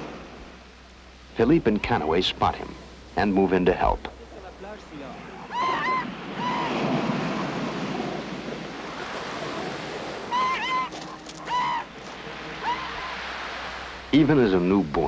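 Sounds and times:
surf breaking: 0:03.8 - 0:15.0
short high calls: 0:05.1 - 0:07.5, 0:09.1 - 0:13.8.

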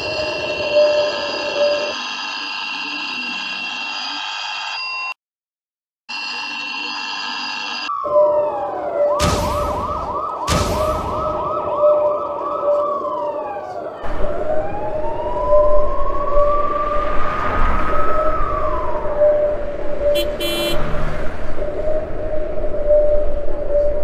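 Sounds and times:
buzzing alarm tone: 0:00.0 - 0:05.2, 0:06.1 - 0:08.4, 0:20.1 - 0:20.8
emergency vehicle sirens: 0:00.0 - 0:05.2, 0:06.1 - 0:24.0.

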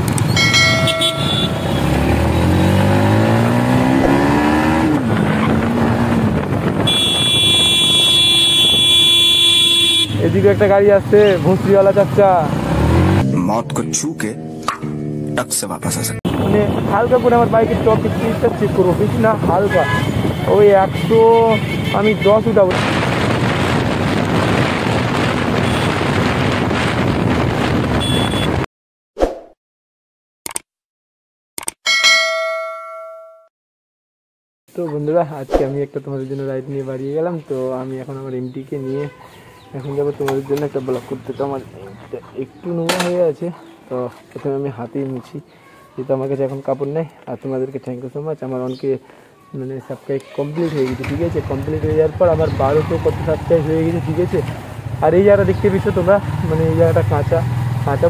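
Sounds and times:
motorcycle engine running: 0:00.0 - 0:07.8
motorcycle engine revving: 0:00.0 - 0:09.2, 0:09.9 - 0:13.4, 0:50.7 - 0:58.0
brief sound effect: 0:00.3 - 0:01.9
high ringing tone: 0:00.3 - 0:01.9, 0:31.9 - 0:33.5
wind rush on microphone: 0:04.1 - 0:07.8, 0:16.3 - 0:28.6.

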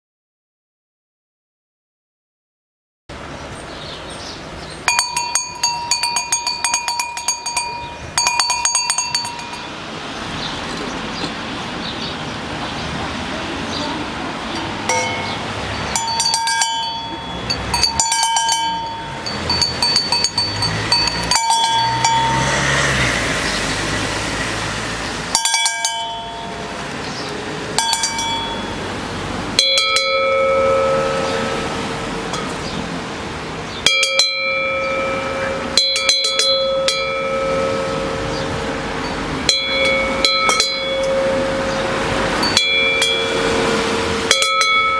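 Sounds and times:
cowbells clanging: 0:04.8 - 0:09.8, 0:14.5 - 0:23.2, 0:25.3 - 0:32.8, 0:33.8 - 0:44.9.

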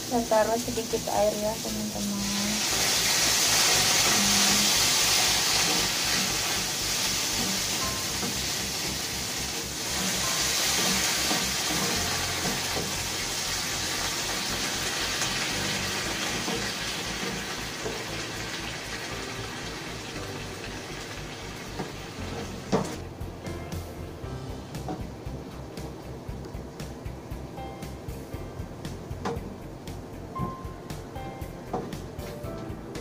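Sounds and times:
green beans sizzling in pan: 0:00.0 - 0:23.0.

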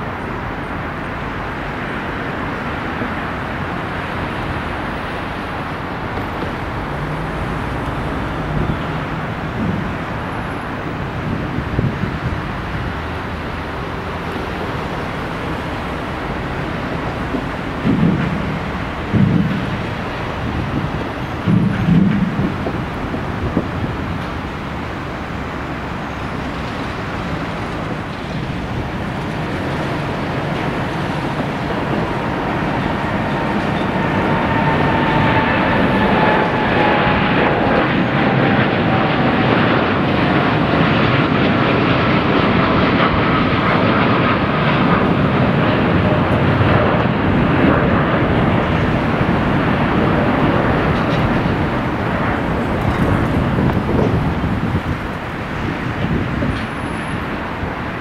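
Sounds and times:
jet engines roaring: 0:00.0 - 0:58.0
engine whine sliding down: 0:03.9 - 0:40.7.

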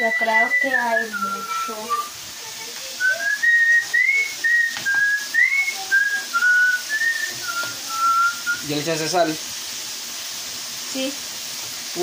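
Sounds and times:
person whistling a tune: 0:00.0 - 0:02.2, 0:03.0 - 0:08.7
potato sticks sizzling in oil: 0:00.0 - 0:12.0.

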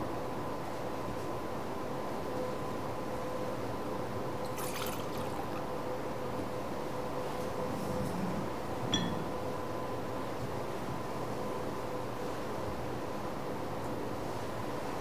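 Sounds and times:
faint hum: 0:00.0 - 0:12.3
liquid trickling into a cup: 0:04.4 - 0:05.8.

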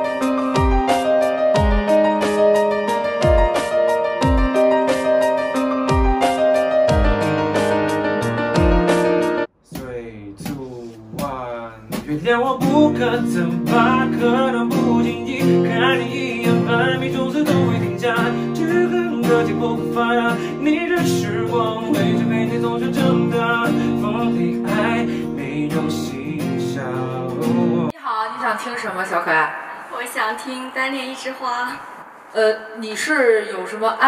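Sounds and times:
man singing: 0:09.7 - 0:27.9
strummed acoustic guitar: 0:11.2 - 0:27.9.

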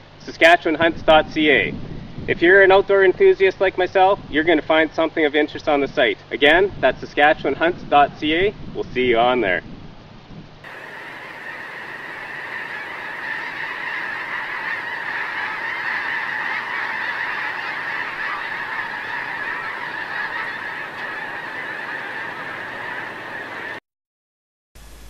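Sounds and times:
flock of geese honking: 0:10.7 - 0:23.8.

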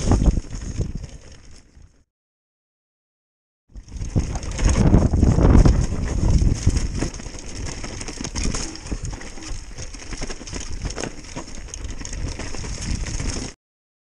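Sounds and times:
bike tyre rumble on dirt: 0:00.0 - 0:02.0, 0:03.7 - 0:13.6
bike knocks and rattles: 0:03.8 - 0:13.6.

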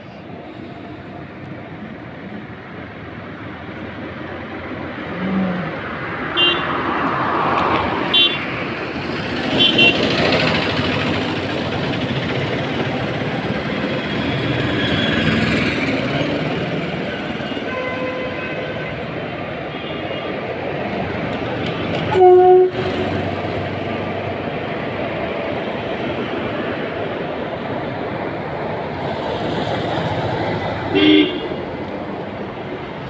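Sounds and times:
road traffic passing: 0:00.0 - 0:33.0
auto-rickshaw going by: 0:07.8 - 0:24.4
short high vehicle horn toots: 0:22.1 - 0:22.8.

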